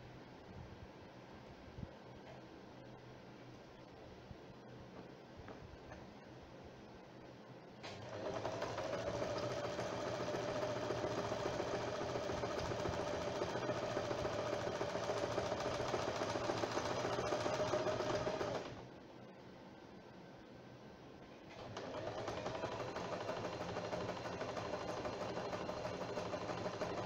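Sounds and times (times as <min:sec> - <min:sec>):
electric sewing machine stitching: 0:07.9 - 0:18.8, 0:21.6 - 0:27.0.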